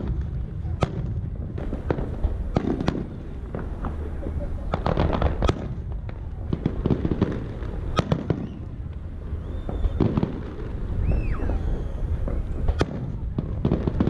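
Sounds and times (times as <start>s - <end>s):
fireworks bangs and crackles: 0.0s - 14.0s
fireworks heavy booms: 0.0s - 14.0s
gliding fireworks whistles: 0.0s - 14.0s.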